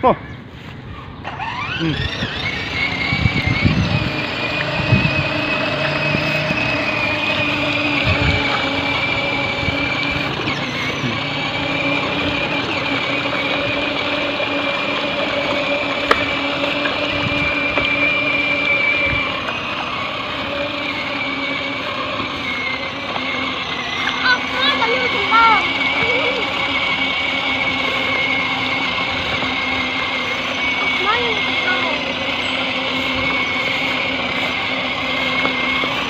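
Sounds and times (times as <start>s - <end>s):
toy tractor electric motor whine: 0.8s - 36.0s.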